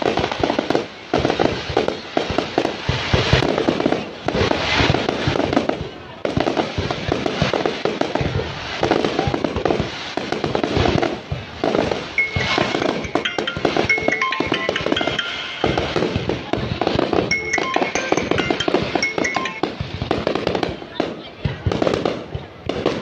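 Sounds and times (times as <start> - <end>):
fireworks bangs and crackling: 0.0 - 23.0
music: 12.2 - 16.4, 17.3 - 19.8
melody of high notes: 12.2 - 20.5.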